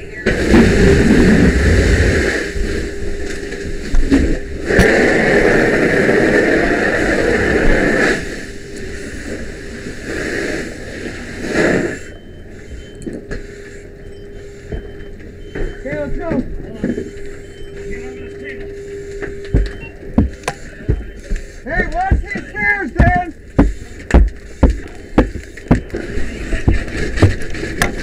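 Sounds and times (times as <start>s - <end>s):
fire hose water stream hissing: 4.6s - 12.7s.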